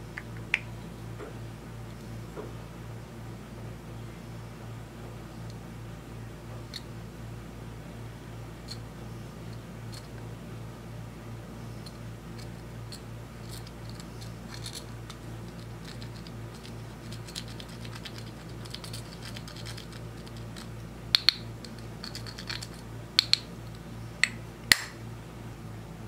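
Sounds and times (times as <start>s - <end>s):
sharp clicks: 11.8s - 25.0s
tool scraping powder makeup: 12.4s - 20.7s.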